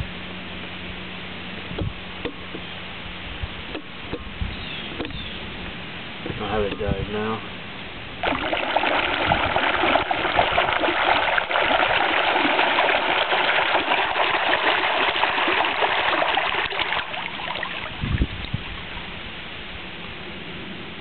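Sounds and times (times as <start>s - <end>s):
water bubbling and splashing: 8.2s - 19.1s.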